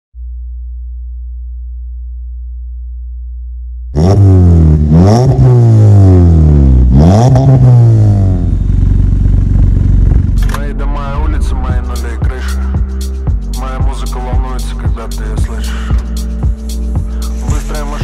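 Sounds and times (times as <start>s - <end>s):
car engine revving hard: 4.0s - 10.3s.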